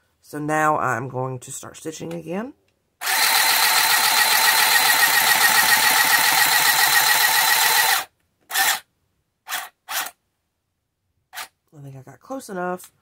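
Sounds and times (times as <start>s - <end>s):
handheld sewing machine running: 3.0s - 8.8s.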